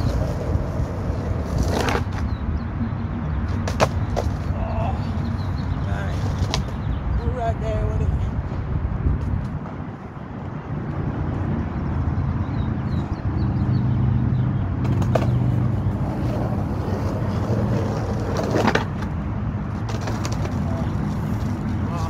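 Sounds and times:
skateboard clacks: 0:00.0 - 0:02.3, 0:03.5 - 0:04.6, 0:06.1 - 0:06.8, 0:14.8 - 0:21.8
skateboard trucks scraping curb: 0:00.0 - 0:02.4, 0:05.8 - 0:06.8, 0:14.8 - 0:22.0
skateboard wheels rolling on asphalt: 0:00.0 - 0:22.0.

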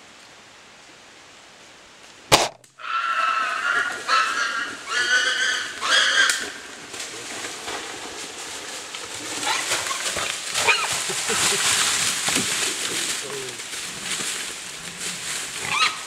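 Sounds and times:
bow firing crack: 0:02.3 - 0:02.7
boar squealing: 0:02.8 - 0:06.7, 0:09.4 - 0:11.6, 0:15.5 - 0:16.0
animal crashing through dry leaves: 0:03.4 - 0:16.0.

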